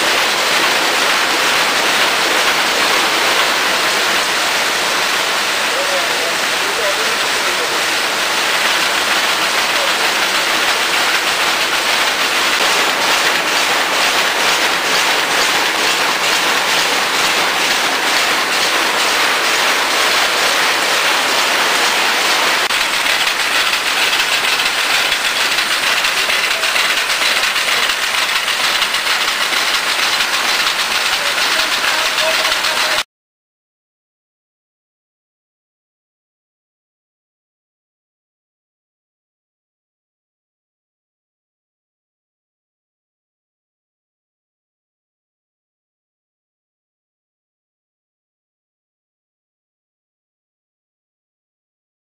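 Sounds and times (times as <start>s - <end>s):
embroidery machine clattering: 0.0s - 33.0s.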